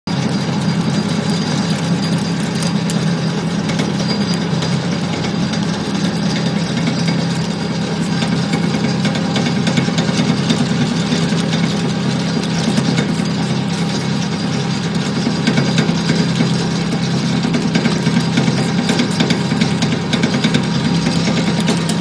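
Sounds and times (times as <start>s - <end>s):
food extruder motor hum: 0.1s - 22.0s.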